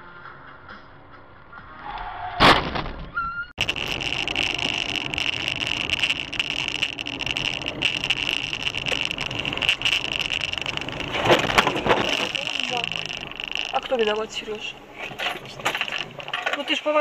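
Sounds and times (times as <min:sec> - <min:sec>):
car road and engine noise: 0:00.0 - 0:02.5, 0:03.6 - 0:17.0
steady high whine: 0:03.6 - 0:16.4.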